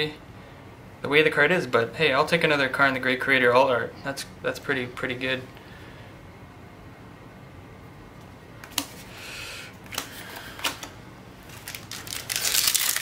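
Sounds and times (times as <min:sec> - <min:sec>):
cards rustling: 0:09.8 - 0:13.0.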